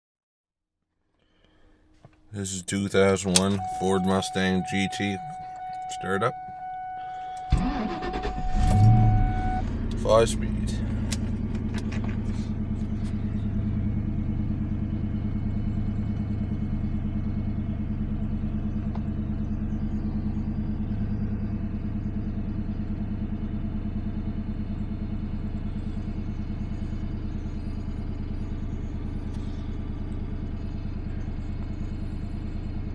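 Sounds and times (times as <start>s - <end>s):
car engine idling: 1.2s - 32.9s.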